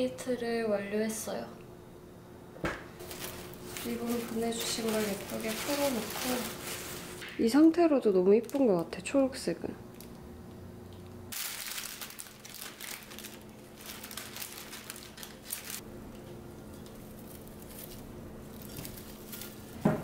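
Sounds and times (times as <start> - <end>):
cellophane wrap crinkling: 3.0 - 7.2, 8.0 - 9.1, 11.3 - 15.8, 16.9 - 19.8.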